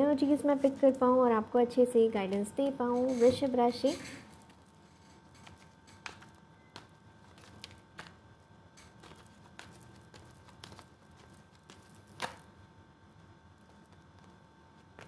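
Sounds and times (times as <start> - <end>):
cards being shuffled: 3.0 - 8.2, 8.8 - 12.5.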